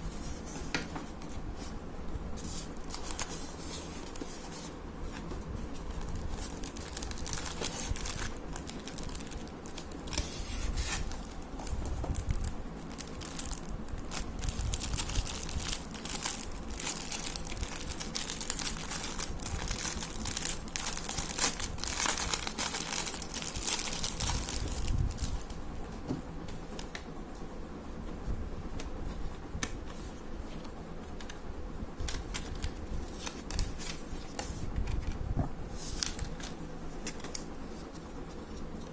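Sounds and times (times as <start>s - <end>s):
plastic bag crinkling: 5.7s - 25.5s.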